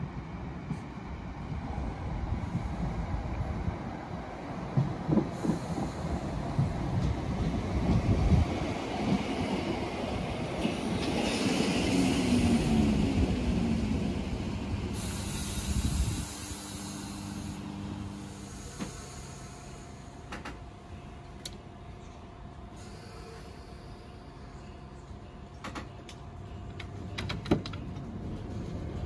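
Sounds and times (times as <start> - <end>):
steady train hum: 0.0 - 29.0
train wheel and motor rumble: 0.0 - 29.0
hiss of air: 5.2 - 7.1, 14.8 - 20.4.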